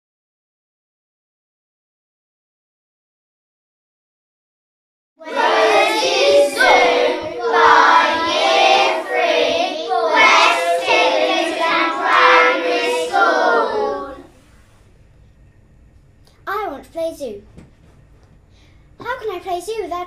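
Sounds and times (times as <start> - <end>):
young children singing: 5.2 - 14.4.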